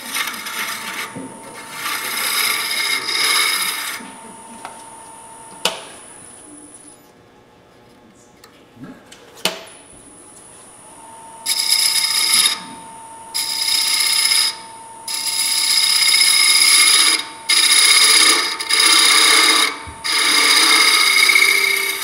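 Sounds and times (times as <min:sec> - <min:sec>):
lathe tool scraping wood: 0:00.0 - 0:04.3, 0:11.5 - 0:22.0.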